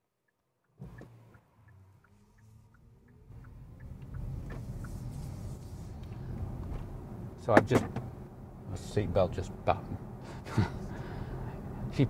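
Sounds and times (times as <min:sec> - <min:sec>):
light regular ticking: 0:00.3 - 0:05.1
road and tyre noise in car: 0:00.5 - 0:12.0.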